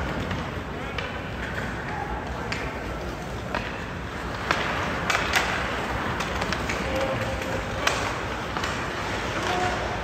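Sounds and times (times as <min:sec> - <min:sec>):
hockey sticks and puck clacking: 0:00.0 - 0:10.0
skate blades scraping ice: 0:02.8 - 0:10.0.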